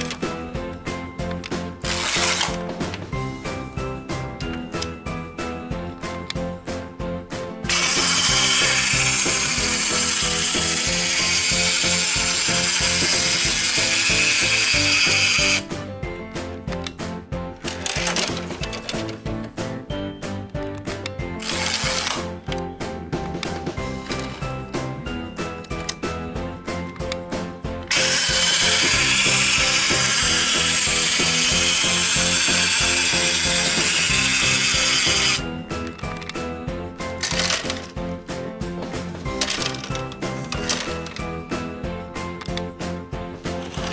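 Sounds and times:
toy gear mechanism clattering: 0:00.0 - 0:00.3, 0:01.2 - 0:03.1, 0:07.7 - 0:15.7, 0:17.6 - 0:19.2, 0:20.9 - 0:24.6, 0:25.6 - 0:26.1, 0:27.8 - 0:36.5, 0:37.1 - 0:38.1, 0:39.2 - 0:41.4, 0:43.6 - 0:43.9
background music: 0:00.0 - 0:43.9.

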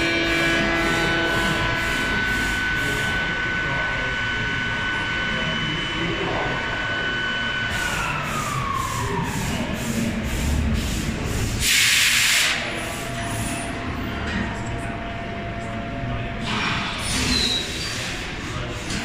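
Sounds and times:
motor whine winding down: 0:00.0 - 0:09.8
low steady machine hum: 0:00.0 - 0:11.4.

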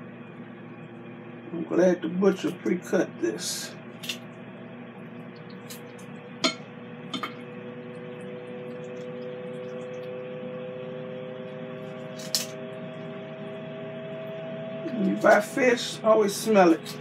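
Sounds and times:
grill fan humming: 0:00.0 - 0:17.0
kitchen shears snipping: 0:12.1 - 0:12.6.

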